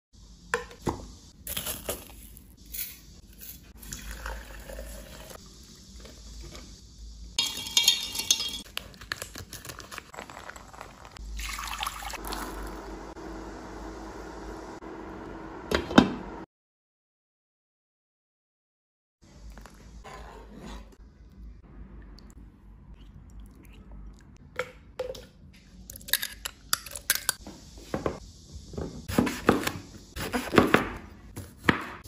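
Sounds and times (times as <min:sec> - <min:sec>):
water pouring into glass jug: 0:03.8 - 0:05.8, 0:10.2 - 0:12.8
glass kitchenware knocking: 0:07.4 - 0:08.6.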